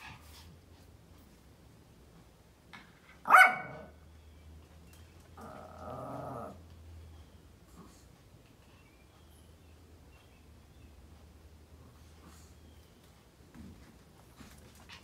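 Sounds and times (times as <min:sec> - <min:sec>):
small dog barking: 0:03.2 - 0:04.0.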